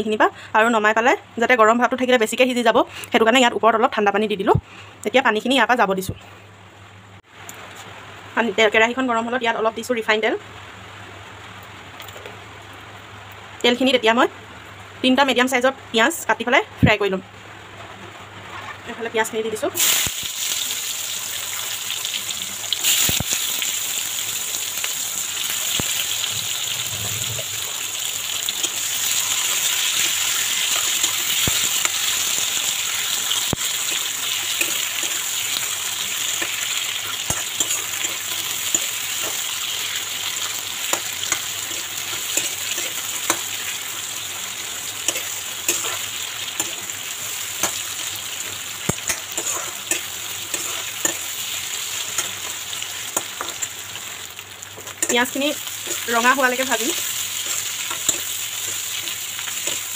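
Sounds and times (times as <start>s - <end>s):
onions sizzling in oil: 17.7s - 59.9s.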